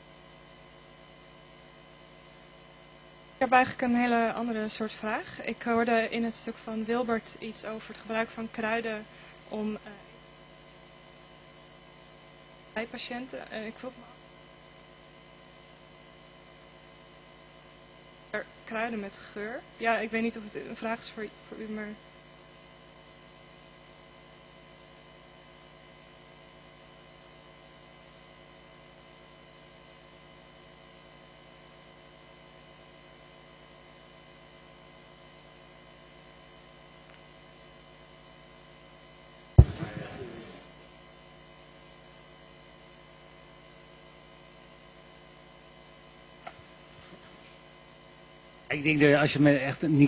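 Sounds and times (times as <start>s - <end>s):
electrical mains hum: 0.0s - 50.0s
sharp loud thump with rattle: 39.6s - 40.6s.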